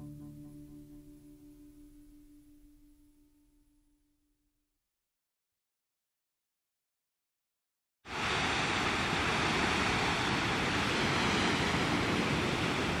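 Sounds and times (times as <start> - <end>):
steady rushing noise: 8.1 - 13.0.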